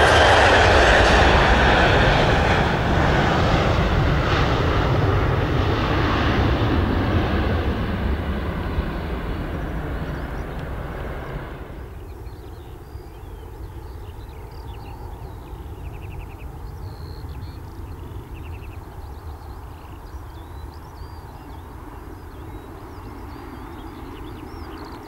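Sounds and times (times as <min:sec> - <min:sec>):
jet engines rumbling: 0:00.0 - 0:25.0
birds chirping and trilling: 0:09.4 - 0:25.0.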